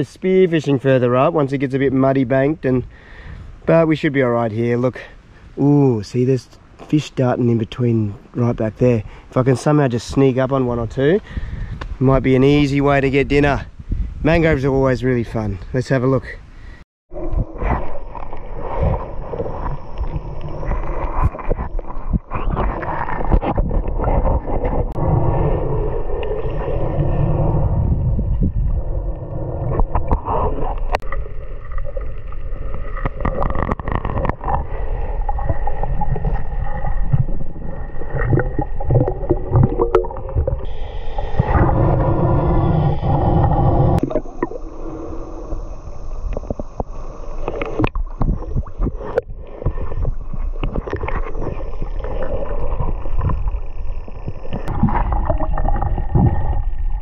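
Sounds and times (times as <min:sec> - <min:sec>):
underwater sloshing and gurgling: 0:16.6 - 0:57.0
deep underwater rumble: 0:17.1 - 0:57.0
thin hiss: 0:40.6 - 0:54.7.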